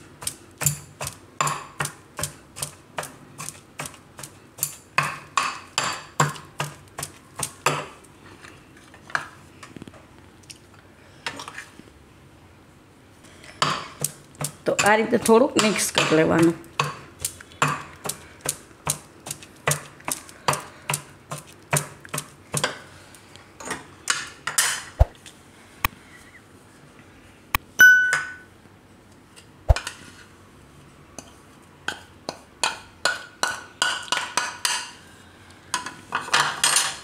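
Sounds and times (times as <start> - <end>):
metal pestle pounding in mortar: 0.2 - 2.3
bright ringing ping: 27.8 - 28.5.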